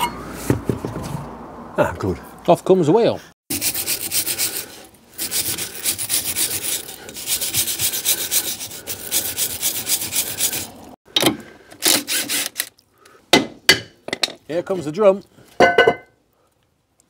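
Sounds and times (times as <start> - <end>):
wire brush scrubbing metal: 3.5 - 10.9.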